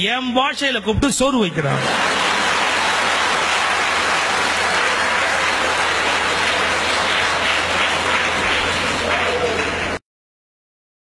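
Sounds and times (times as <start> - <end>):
audience applauding: 1.7 - 10.0.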